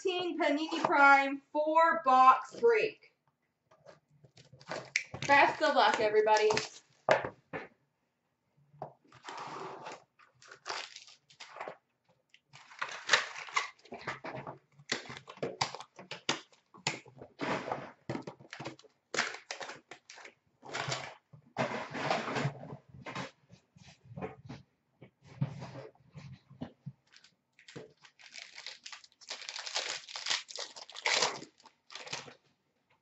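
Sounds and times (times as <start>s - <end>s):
plastic wrap crinkling: 4.4s - 6.9s, 10.2s - 11.8s, 12.4s - 14.1s, 18.2s - 21.0s, 27.0s - 32.4s
cardboard rustling: 27.0s - 32.4s.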